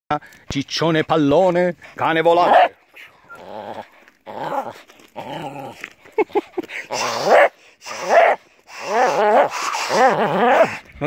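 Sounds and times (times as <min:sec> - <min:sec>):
dog crying: 0:06.9 - 0:10.7.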